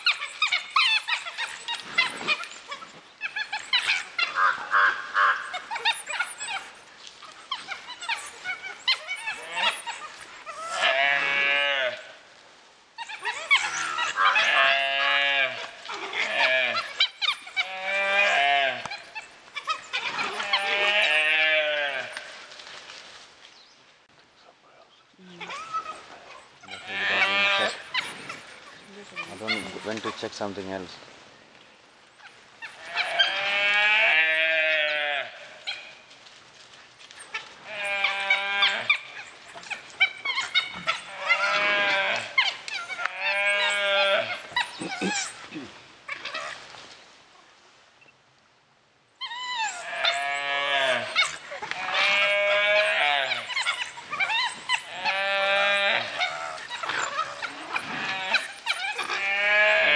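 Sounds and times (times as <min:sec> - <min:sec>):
short squeaky calls: 0:00.0 - 0:12.0, 0:13.0 - 0:22.4, 0:25.2 - 0:30.8, 0:32.0 - 0:36.0, 0:37.0 - 0:46.8, 0:49.2 - 0:59.9
gaur bawling: 0:25.2 - 0:30.4, 0:37.4 - 0:46.4.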